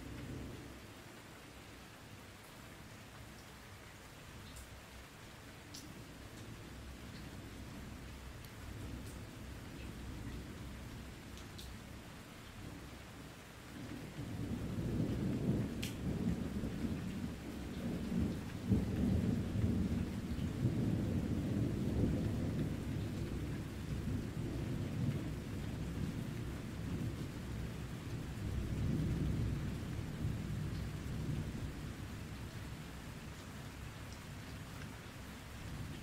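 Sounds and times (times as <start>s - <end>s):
steady rain: 0.0s - 36.0s
thunder rumbling: 14.2s - 32.4s.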